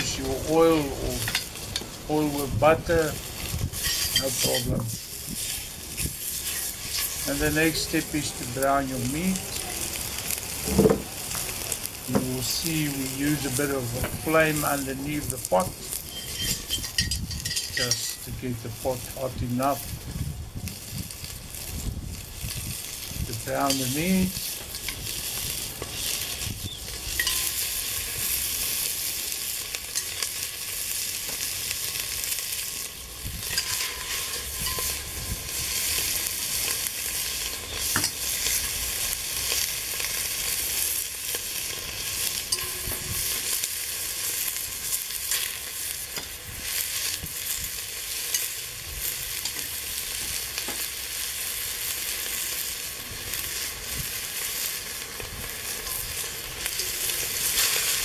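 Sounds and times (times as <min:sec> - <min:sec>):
meat sizzling and spitting in a pot: 0:00.0 - 0:58.0.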